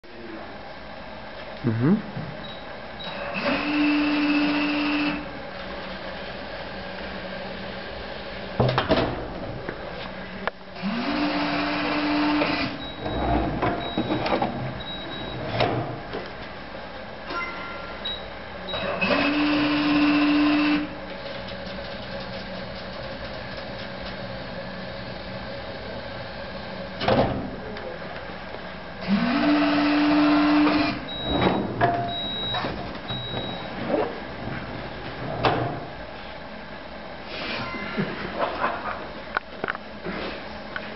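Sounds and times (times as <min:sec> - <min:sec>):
vending machine motor running: 0:10.8 - 0:16.2, 0:18.7 - 0:27.6, 0:28.9 - 0:36.2.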